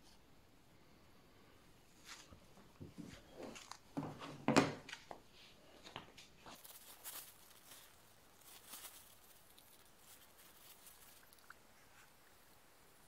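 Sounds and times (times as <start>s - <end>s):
paper tissue crumpling: 4.9s - 12.2s.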